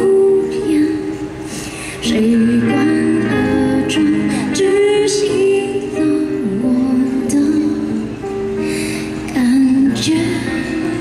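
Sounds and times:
woman singing into a microphone: 0:00.0 - 0:11.0.

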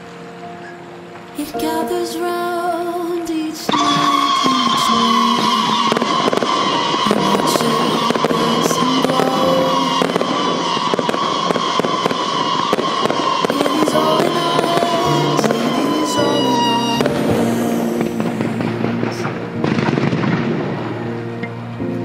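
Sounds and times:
fireworks bangs and crackles: 0:03.7 - 0:21.0
loud music: 0:13.4 - 0:21.2.

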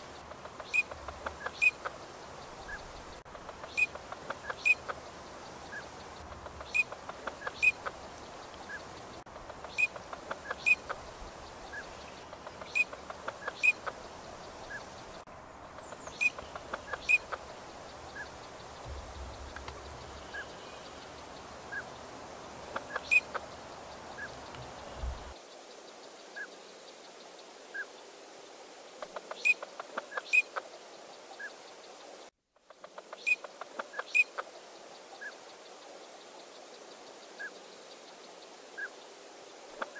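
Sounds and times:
low background rumble: 0:14.0 - 0:22.7.

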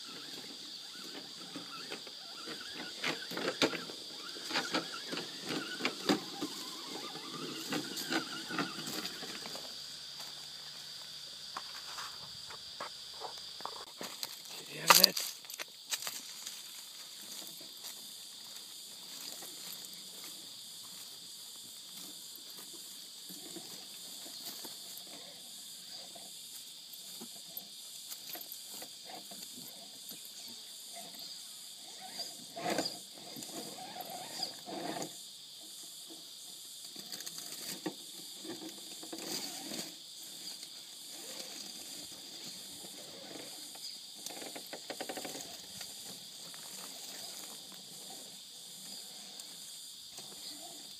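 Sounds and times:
small electric motor whirring: 0:00.0 - 0:09.8
high insect drone: 0:00.0 - 0:50.9.

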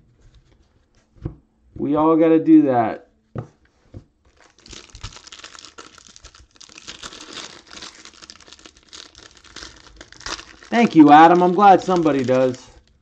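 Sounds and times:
plastic wrapper crinkling and tearing: 0:04.3 - 0:13.0.

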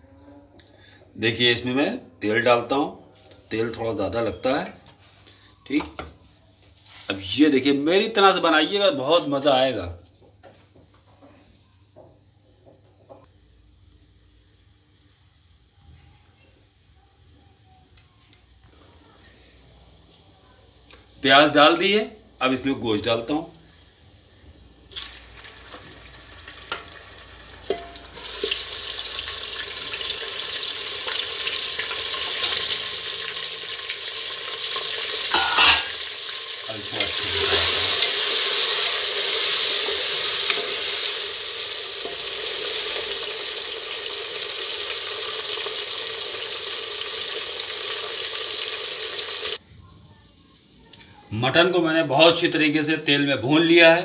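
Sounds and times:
meat sizzling in hot oil: 0:13.4 - 0:16.9, 0:17.5 - 0:49.6
spatula knocking pot: 0:27.7 - 0:28.0.

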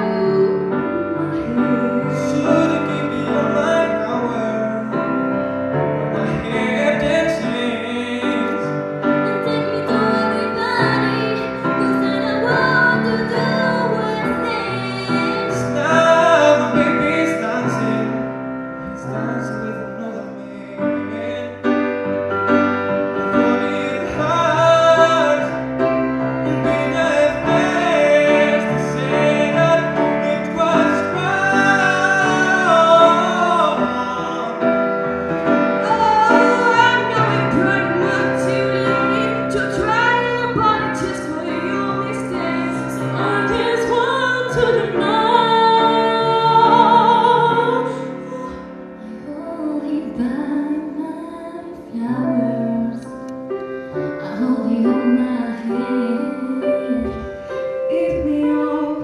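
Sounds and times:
women singing: 0:00.0 - 0:02.8, 0:09.1 - 0:16.9, 0:35.8 - 0:53.1, 0:54.2 - 0:57.2, 0:57.8 - 0:59.0
grand piano accompaniment: 0:00.0 - 0:59.0.

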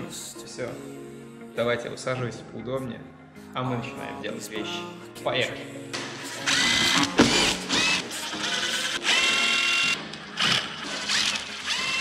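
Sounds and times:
power drill whirring: 0:06.3 - 0:12.0.

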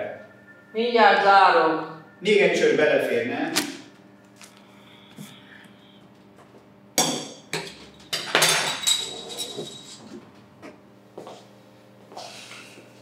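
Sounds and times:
glassware clinking and clattering: 0:07.0 - 0:10.0.

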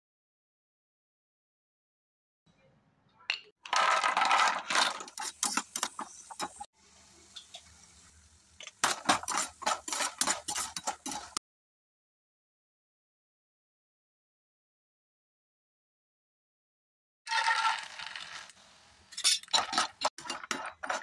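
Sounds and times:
nuts rattling in a frying pan: 0:03.7 - 0:06.7, 0:08.7 - 0:11.4, 0:17.3 - 0:18.5
spatula scraping: 0:03.8 - 0:06.7, 0:08.6 - 0:11.4, 0:17.3 - 0:18.5, 0:19.1 - 0:21.0.

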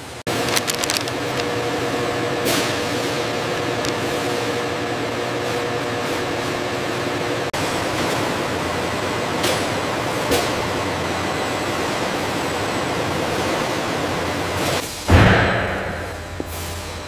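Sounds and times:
factory background hiss: 0:01.1 - 0:17.0
faint hum: 0:15.1 - 0:17.0.

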